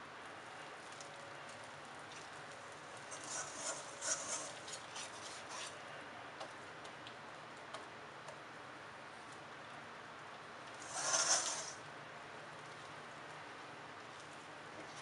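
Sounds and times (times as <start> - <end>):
whisk scraping metal bowl: 3.1 - 5.8, 10.8 - 11.8.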